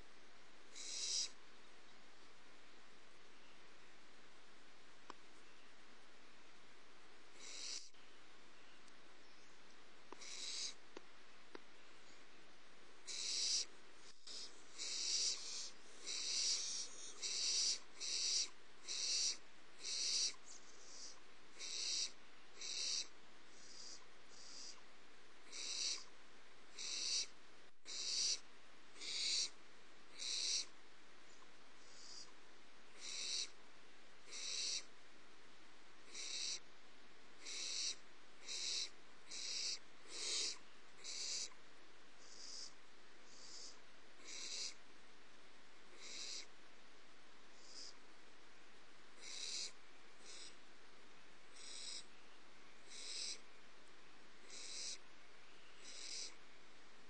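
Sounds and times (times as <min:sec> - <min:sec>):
owlets rasping hiss calls: 0:00.7 - 0:01.4, 0:07.4 - 0:07.9, 0:10.2 - 0:10.8, 0:13.0 - 0:24.8, 0:25.5 - 0:26.1, 0:26.8 - 0:27.3, 0:27.9 - 0:28.4, 0:29.0 - 0:30.7, 0:33.0 - 0:33.6, 0:34.3 - 0:34.9, 0:36.1 - 0:36.6, 0:37.4 - 0:41.5, 0:42.2 - 0:44.8, 0:45.9 - 0:46.5, 0:47.6 - 0:48.0, 0:49.2 - 0:50.6, 0:51.6 - 0:52.1, 0:52.9 - 0:53.4, 0:54.4 - 0:55.0, 0:55.8 - 0:56.4.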